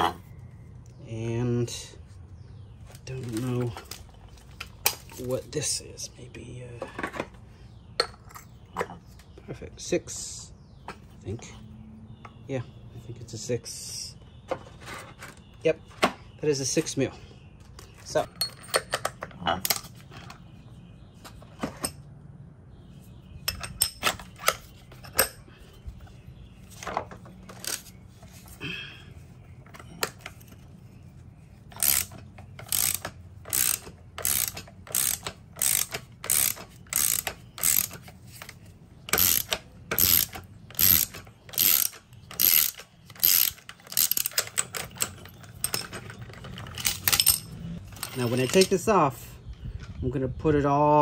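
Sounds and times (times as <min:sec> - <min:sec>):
tool clinks: 0:18.0 - 0:19.9, 0:39.1 - 0:48.9
ratchet wrench clicking: 0:31.7 - 0:46.0.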